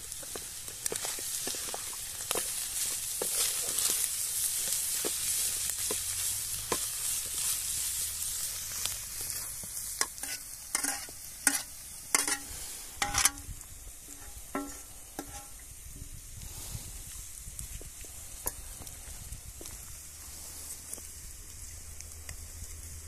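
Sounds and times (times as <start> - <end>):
food sizzling in a pan: 0.0 - 23.0
metal utensil knocking on pan: 12.2 - 12.4, 13.0 - 13.4, 14.2 - 15.5.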